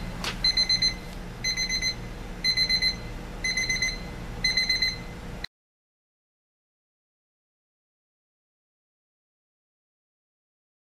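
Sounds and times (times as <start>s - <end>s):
alarm clock beeping: 0.4s - 5.1s.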